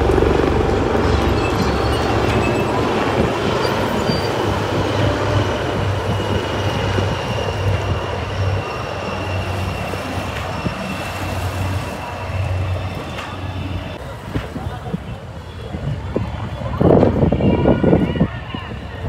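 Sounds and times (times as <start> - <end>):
helicopters flying past: 0.0 - 10.6.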